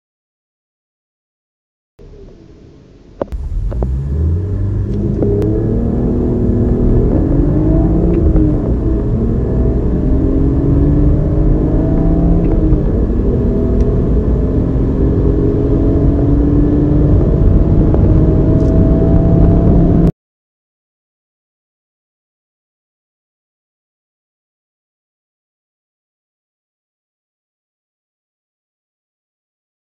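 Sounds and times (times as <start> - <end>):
car engine accelerating hard: 3.2 - 20.1.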